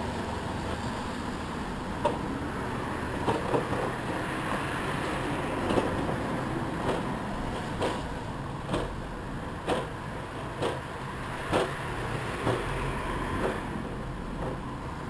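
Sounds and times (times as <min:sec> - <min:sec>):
wheelchair wheels rumbling on pavement: 0:00.0 - 0:15.0
wheels knocking over slab joints: 0:03.2 - 0:04.7, 0:05.6 - 0:12.8, 0:13.4 - 0:14.7.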